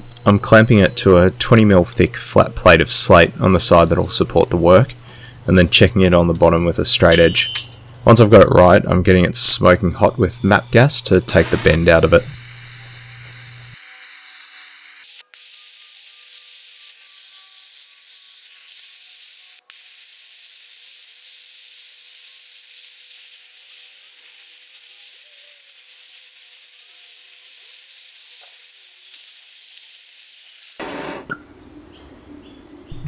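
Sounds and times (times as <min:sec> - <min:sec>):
gas torch hissing: 0:10.2 - 0:13.8, 0:15.7 - 0:31.4.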